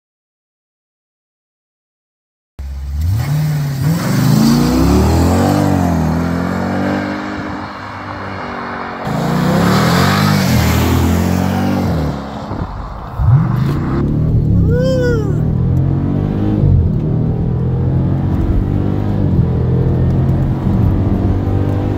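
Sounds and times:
car engine accelerating past: 2.7s - 21.9s
engine revving inside cabin: 13.2s - 21.9s.

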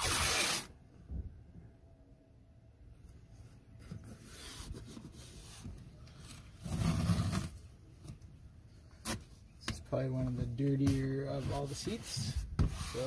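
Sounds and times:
tape rubbed down by hand: 0.0s - 0.7s, 11.0s - 13.0s.

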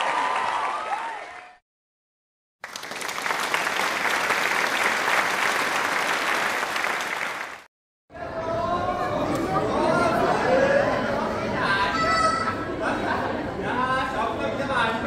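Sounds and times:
crowd applauding: 0.0s - 1.6s, 2.6s - 7.7s
crowd cheering: 0.0s - 1.6s, 2.6s - 7.7s.

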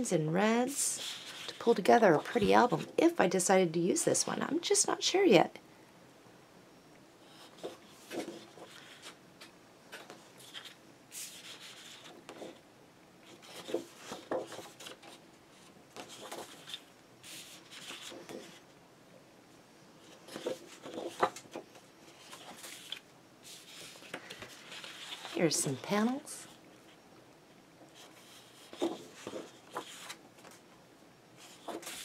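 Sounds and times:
paper sheets rustling and sliding: 7.6s - 12.6s, 13.3s - 18.6s, 20.1s - 26.5s, 28.0s - 30.6s, 31.4s - 32.0s.

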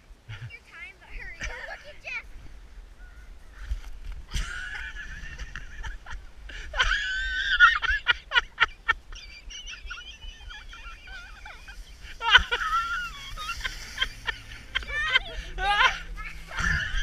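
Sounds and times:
children laughing: 1.2s - 2.2s, 4.3s - 17.0s.

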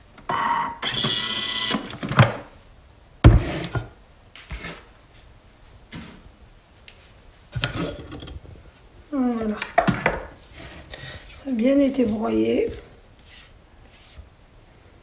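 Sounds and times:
food processor mechanical whir: 0.3s - 1.9s.

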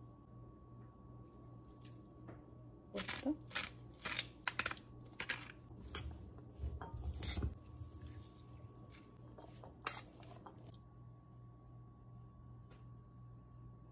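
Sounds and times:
seasoning shaker rattling: 3.0s - 7.6s, 8.2s - 10.7s
spoon clinking metal bowl: 5.8s - 10.7s.

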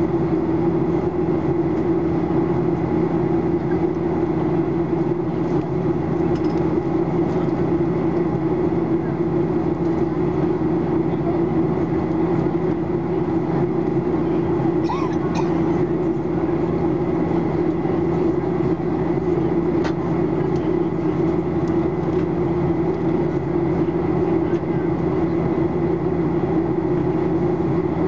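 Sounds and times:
airflow over aircraft fuselage: 0.0s - 28.0s
jet engines droning: 0.0s - 28.0s.

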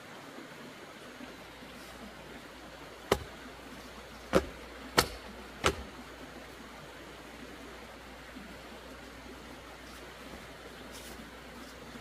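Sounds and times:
steady low hiss: 0.0s - 12.0s
sharp knocks: 3.1s - 3.3s, 4.3s - 5.9s.

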